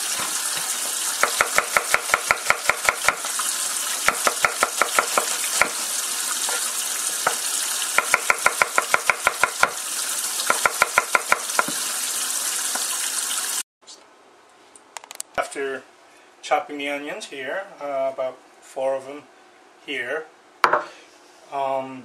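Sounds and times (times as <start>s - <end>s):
knife chopping on wooden board: 1.2s - 3.3s, 4.0s - 5.8s, 7.2s - 9.8s, 10.5s - 11.8s, 20.6s - 20.9s.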